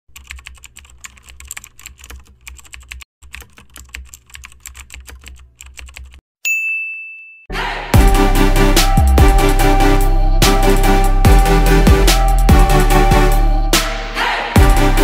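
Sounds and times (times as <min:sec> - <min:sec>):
keyboard typing clicks: 0:00.1 - 0:06.2
high bell-like ding: 0:06.4 - 0:07.5.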